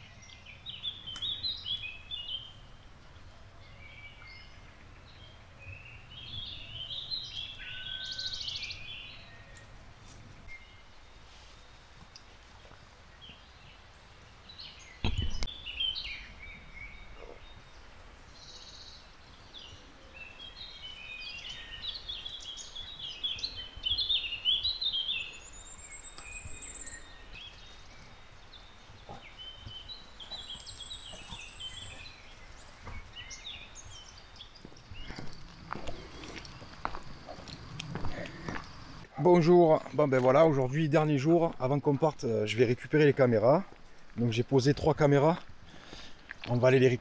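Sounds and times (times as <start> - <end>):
birds singing and chirping: 0.0 - 47.0
low thump: 15.0 - 15.5.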